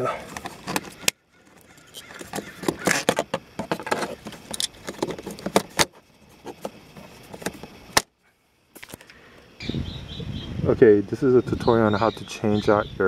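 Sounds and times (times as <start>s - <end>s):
small hard objects clicking and rattling: 0.3s - 7.6s.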